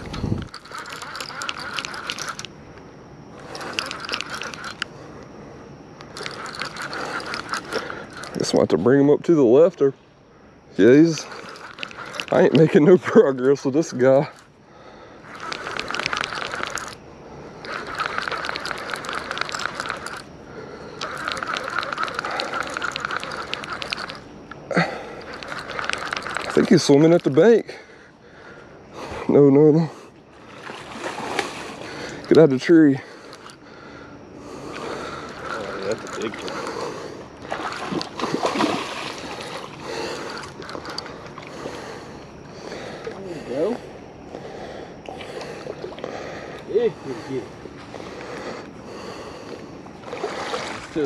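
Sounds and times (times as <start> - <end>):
fishing reel clicking: 0.0 - 2.6, 3.4 - 4.9, 6.0 - 8.7, 10.8 - 14.5, 15.2 - 17.0, 17.6 - 27.6, 32.0 - 33.6, 34.6 - 38.7, 39.4 - 41.5.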